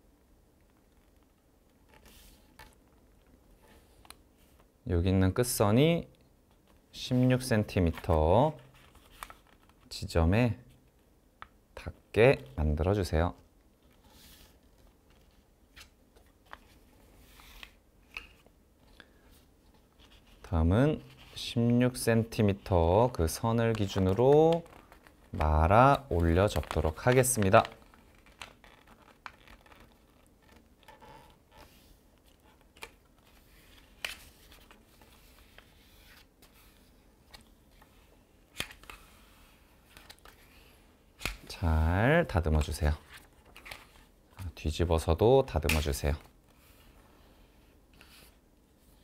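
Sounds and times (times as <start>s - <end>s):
paper rustling: 23.2s - 41.4s
paper crinkles: 23.7s - 31.0s.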